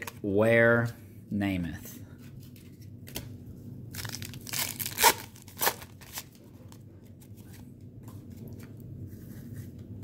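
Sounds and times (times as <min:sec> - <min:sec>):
paper wrapper tearing: 0:03.9 - 0:06.4.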